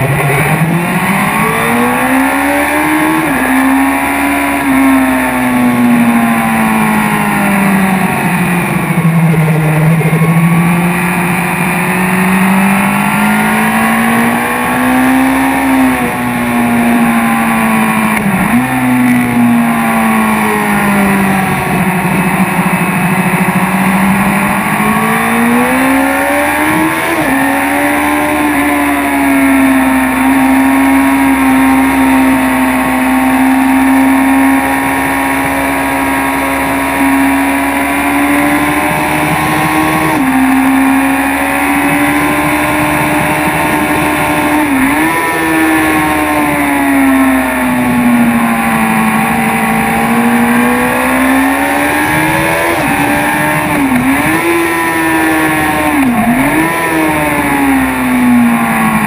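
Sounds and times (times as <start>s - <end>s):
motorcycle engine accelerating: 0.0s - 59.0s.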